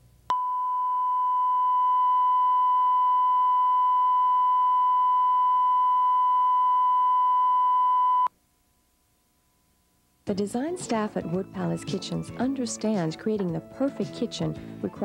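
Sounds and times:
electronic test tone: 0.3s - 8.3s.

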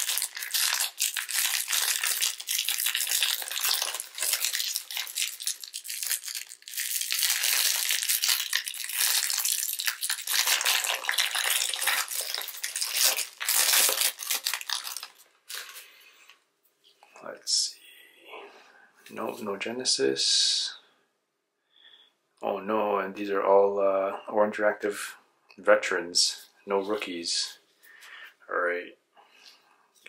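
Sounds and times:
plastic wrapper crinkling: 0.0s - 16.0s.

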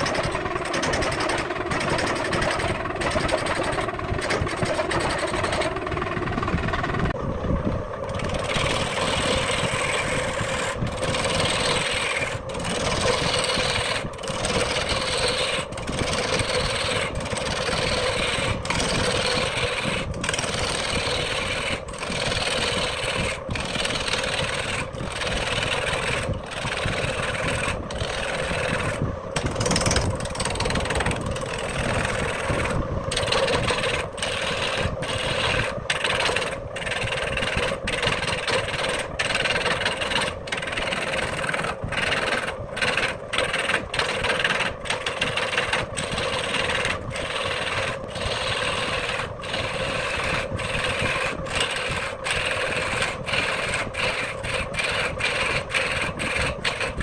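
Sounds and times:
lathe running: 0.0s - 7.2s, 7.9s - 57.0s
tool cutting spinning wood: 0.0s - 57.0s.

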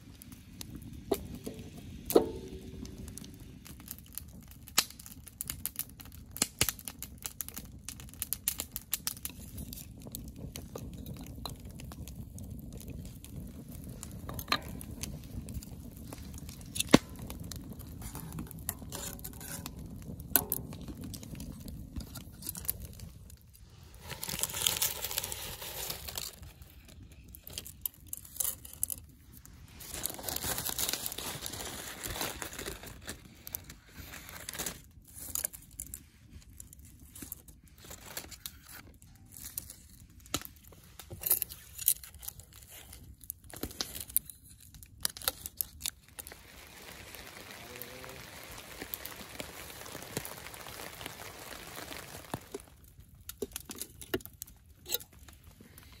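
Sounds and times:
rain pattering: 8.3s - 23.4s, 45.3s - 54.1s
clicks and knocks on a pot: 18.2s - 21.2s
packaging crinkling and tearing: 20.6s - 29.1s, 29.7s - 35.8s, 36.5s - 56.0s.

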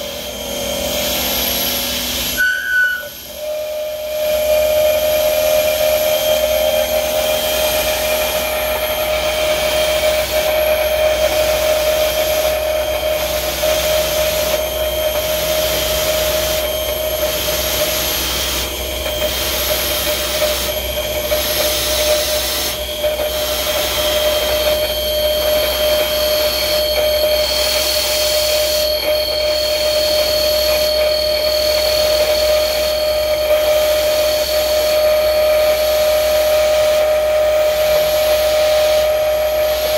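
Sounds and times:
cutter hissing on steel: 0.0s - 39.9s
spindle whine: 0.0s - 39.9s.

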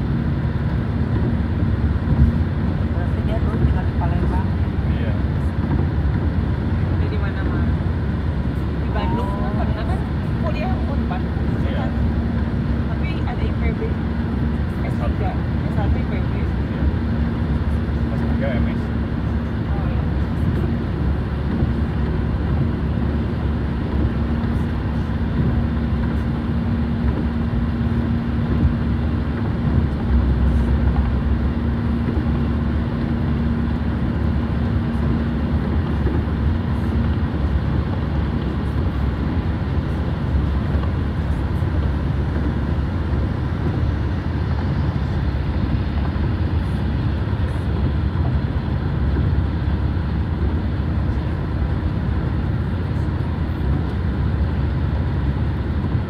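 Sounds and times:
car road and engine rumble: 0.0s - 56.0s
low steady hum: 0.0s - 56.0s.

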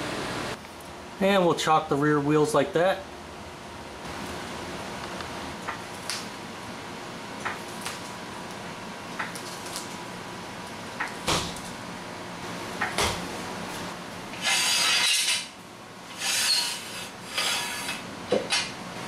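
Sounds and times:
air conditioner hum: 0.0s - 19.0s
jack stand scraping on concrete: 14.3s - 15.5s, 16.1s - 18.0s.

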